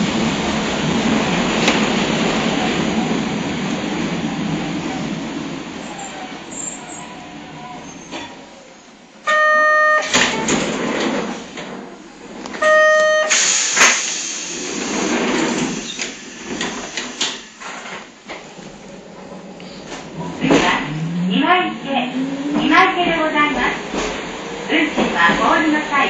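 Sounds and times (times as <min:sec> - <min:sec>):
streetcar rattling on track: 0:00.0 - 0:26.0
horn blasts: 0:12.6 - 0:13.3.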